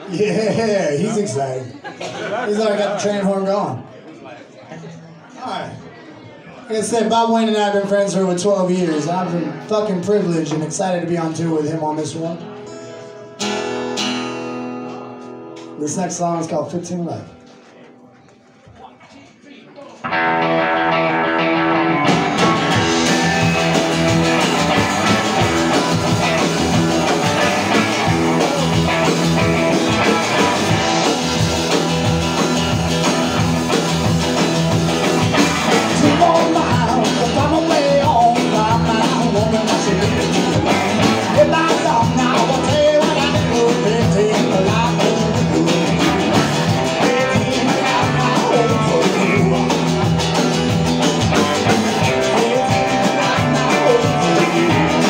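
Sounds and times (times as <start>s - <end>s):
country-rock band playing: 0.0s - 3.8s, 6.7s - 18.0s, 19.9s - 55.0s
man singing: 35.6s - 50.2s, 51.6s - 55.0s.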